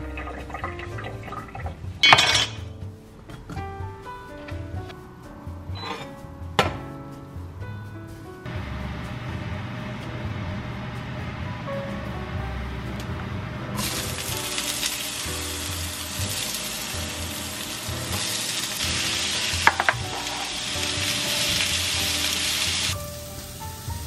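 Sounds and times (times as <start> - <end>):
soft background music: 0.0 - 24.0
peppers sizzling in hot oil: 13.8 - 24.0.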